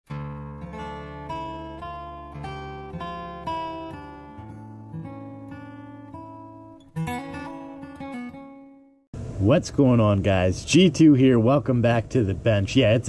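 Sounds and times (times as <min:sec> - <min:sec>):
strummed guitar chord: 0:00.1 - 0:09.0
acoustic guitar notes: 0:00.1 - 0:12.0.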